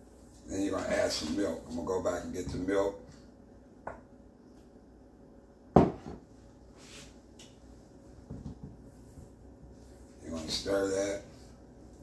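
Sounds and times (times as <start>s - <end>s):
sharp knock on counter: 5.8s - 6.2s.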